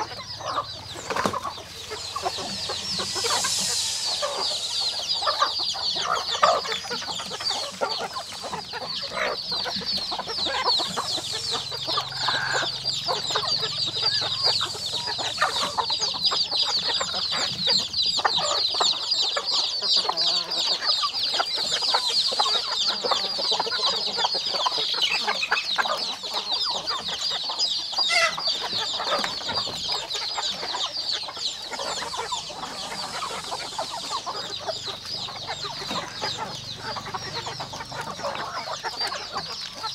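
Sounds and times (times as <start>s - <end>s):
chickens clucking: 0.0s - 39.9s
high-pitched rapid chirping: 1.9s - 19.3s, 31.0s - 37.2s.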